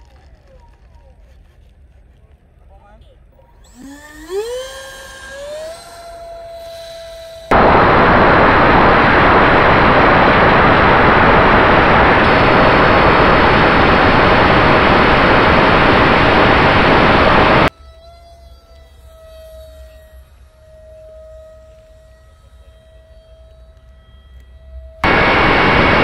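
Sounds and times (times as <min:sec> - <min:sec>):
electric motor whine: 0:03.4 - 0:26.0
loud even rushing noise: 0:07.3 - 0:17.7, 0:25.0 - 0:26.0.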